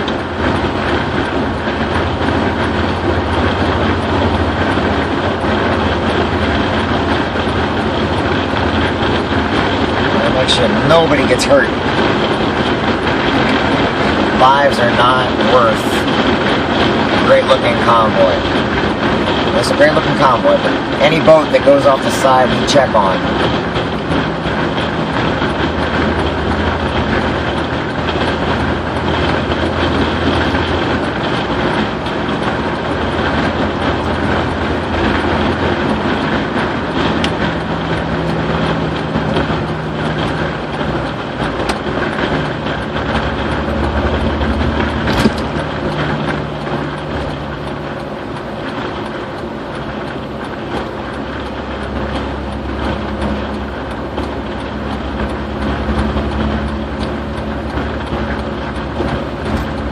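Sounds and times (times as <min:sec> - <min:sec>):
low engine hum: 0:00.0 - 0:59.9
tyre and wind road noise: 0:00.0 - 0:59.9
sharp click: 0:44.5 - 0:46.4.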